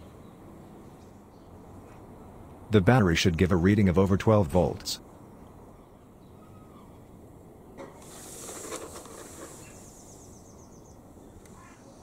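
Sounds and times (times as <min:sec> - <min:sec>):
faint outdoor background noise: 0:00.0 - 0:12.0
hiss: 0:08.0 - 0:10.4.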